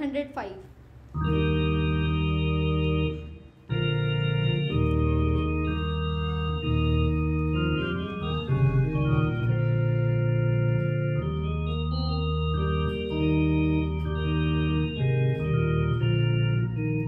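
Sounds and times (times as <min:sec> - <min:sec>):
organ playing held chords: 0:01.1 - 0:17.0.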